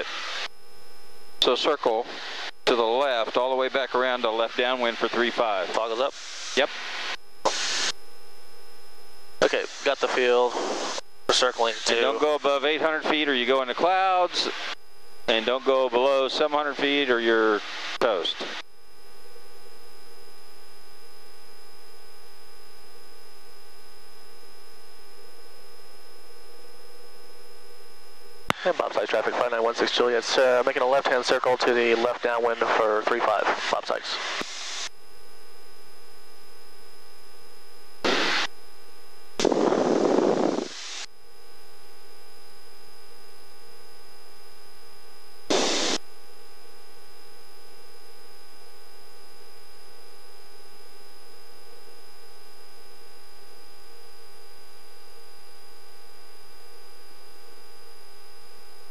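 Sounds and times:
intercom hiss and hum: 0:00.0 - 0:00.6, 0:01.3 - 0:58.9
radio static bursts: 0:01.4 - 0:08.0, 0:09.3 - 0:18.6, 0:27.8 - 0:35.0, 0:37.9 - 0:38.6, 0:39.4 - 0:41.1, 0:45.2 - 0:46.1.

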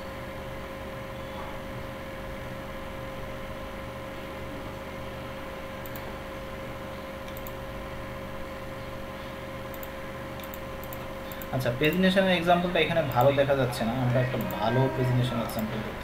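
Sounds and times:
background hum and hiss: 0:00.0 - 0:16.0
constant mid-pitched tone: 0:11.6 - 0:16.0.

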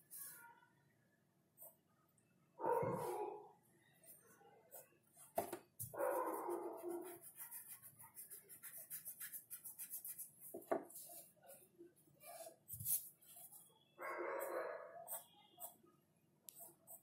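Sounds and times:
dog barking: 0:02.6 - 0:03.5, 0:05.9 - 0:07.2, 0:14.0 - 0:15.2
pencil scratching on paper: 0:04.1 - 0:11.6, 0:12.2 - 0:13.8, 0:14.4 - 0:15.8, 0:16.5 - 0:17.0.

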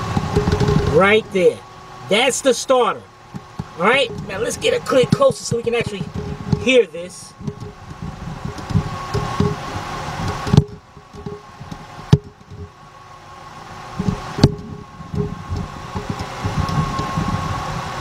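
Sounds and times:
camera handling rumble: 0:00.0 - 0:01.0, 0:07.4 - 0:12.7
sharp knocks: 0:00.0 - 0:01.3, 0:07.4 - 0:09.6
faint steady hum: 0:00.0 - 0:18.0.

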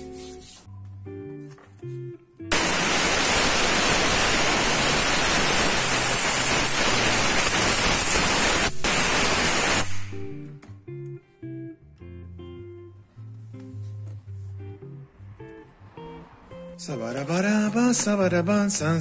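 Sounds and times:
compressed air blow gun hissing: 0:02.5 - 0:10.1.

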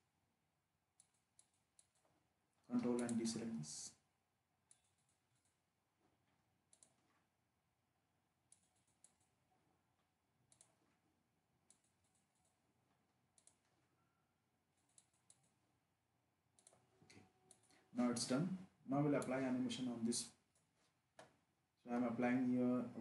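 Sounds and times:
computer mouse clicks: 0:01.0 - 0:02.1, 0:02.8 - 0:03.5, 0:04.7 - 0:05.6, 0:06.7 - 0:07.2, 0:08.5 - 0:09.4, 0:10.4 - 0:10.9, 0:11.6 - 0:12.6, 0:13.3 - 0:13.7, 0:14.8 - 0:15.6, 0:16.5 - 0:17.8.

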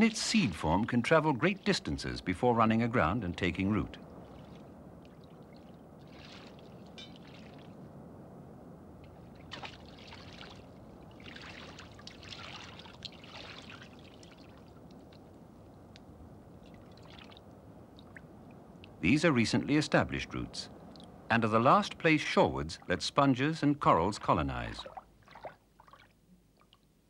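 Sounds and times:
shallow water splashing: 0:00.0 - 0:07.9, 0:09.0 - 0:15.8, 0:16.5 - 0:18.6, 0:23.9 - 0:26.8
steady low hiss: 0:00.0 - 0:27.0.

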